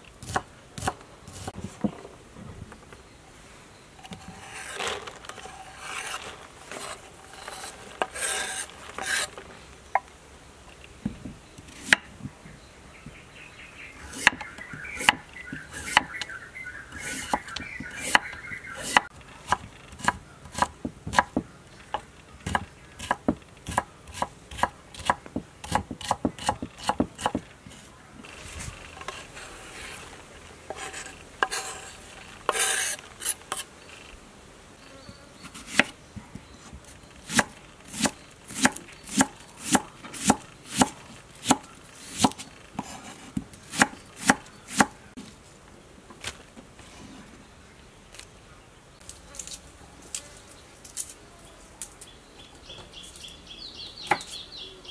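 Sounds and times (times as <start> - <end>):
rustling and clattering: 4.0 - 9.8
knife chopping on wooden board: 22.5 - 27.4.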